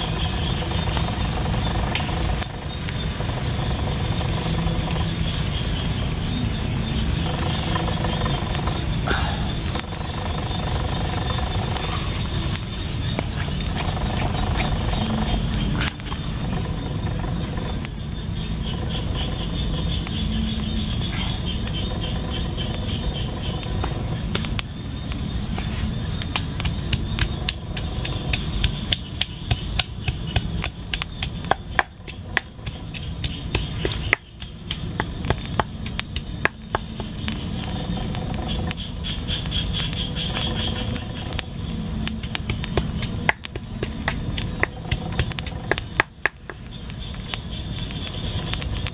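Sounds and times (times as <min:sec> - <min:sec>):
steady low rumble: 0:00.0 - 0:48.9
pestle pounding in stone mortar: 0:26.3 - 0:37.2, 0:42.2 - 0:46.6.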